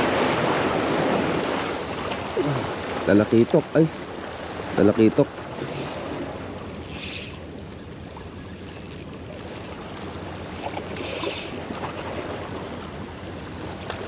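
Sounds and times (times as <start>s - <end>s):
sea water washing against rocks: 0.0s - 7.6s.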